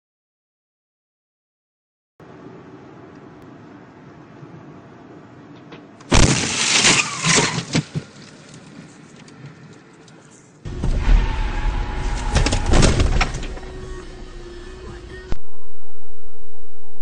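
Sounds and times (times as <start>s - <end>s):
car crash impacts and rattling: 6.1s - 8.2s, 10.7s - 13.9s
steady low rumble: 10.7s - 17.0s.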